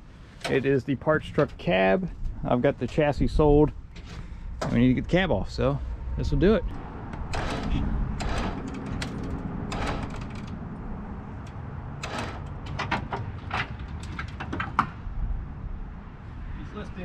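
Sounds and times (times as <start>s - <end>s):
sharp clicks and creaks: 6.6s - 15.0s
electric winch running: 7.3s - 10.6s.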